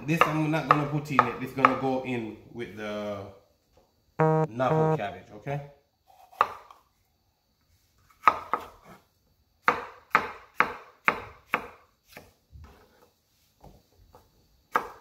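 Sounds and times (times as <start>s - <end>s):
knife chopping on wooden board: 14.7s - 15.0s.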